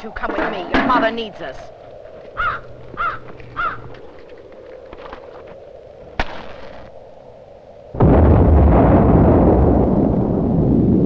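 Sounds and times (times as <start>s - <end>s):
loud explosion rumbling: 7.9s - 11.0s.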